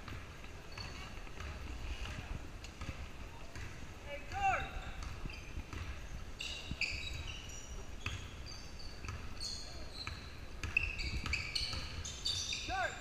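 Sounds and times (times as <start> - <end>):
basketball dribbling: 0.0 - 2.2, 2.8 - 6.1, 9.0 - 9.3, 10.0 - 12.0
sneaker squeaks: 0.0 - 2.2, 4.5 - 13.0.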